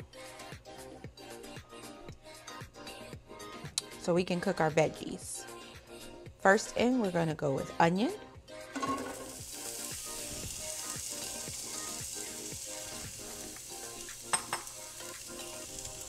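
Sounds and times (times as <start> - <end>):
faint background music: 0.0 - 16.0
onion sizzling in frying pan: 8.8 - 16.0
utensil tapping on pan: 14.2 - 15.1.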